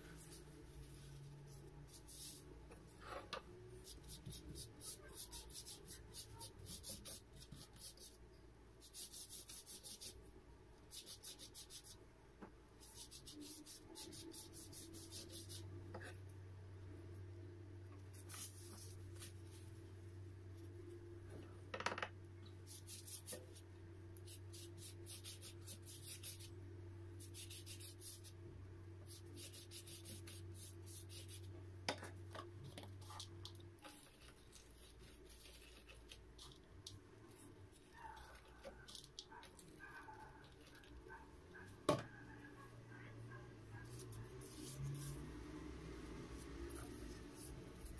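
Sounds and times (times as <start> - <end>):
scratchy rubbing strokes: 12.8 - 15.7, 24.3 - 26.6, 27.2 - 28.3, 43.8 - 47.9.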